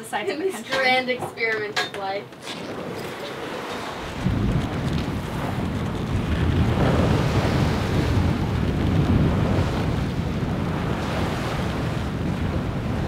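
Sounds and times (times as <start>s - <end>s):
sea rushing along hull: 0.0s - 13.0s
wind buffeting microphone: 2.4s - 13.0s.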